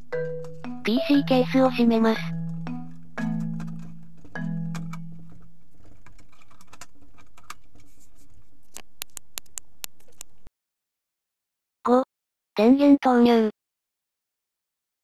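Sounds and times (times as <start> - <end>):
hands handling computer case: 3.3 - 9.2
sharp clicks: 8.8 - 10.3.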